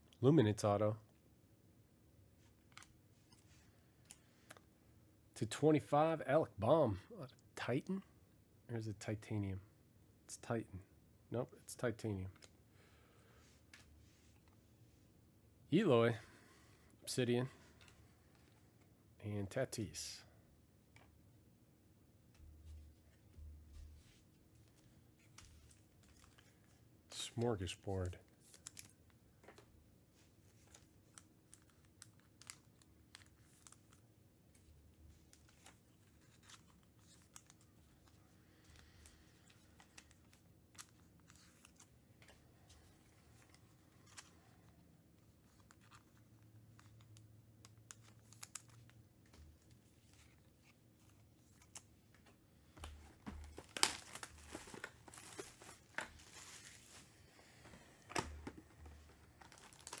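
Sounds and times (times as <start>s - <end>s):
packaging tearing and crinkling: 53.5s - 56.9s, 59.4s - 60.0s.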